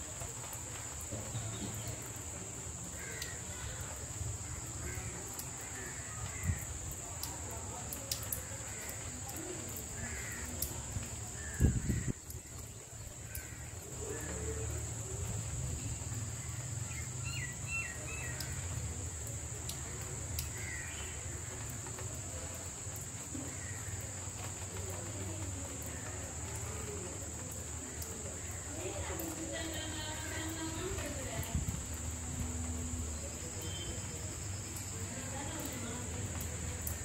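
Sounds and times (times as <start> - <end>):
steady high hiss: 0.0 - 37.0
crows cawing: 3.0 - 3.8, 4.6 - 6.8, 10.0 - 10.7, 13.3 - 14.4, 20.5 - 21.7, 23.4 - 24.0.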